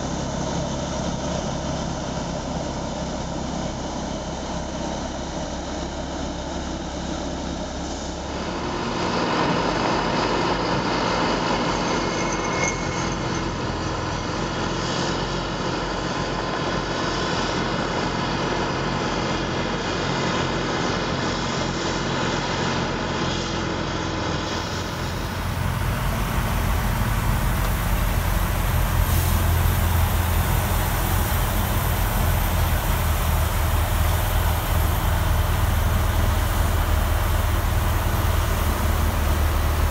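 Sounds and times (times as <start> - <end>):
engine droning under load: 0.0 - 39.9.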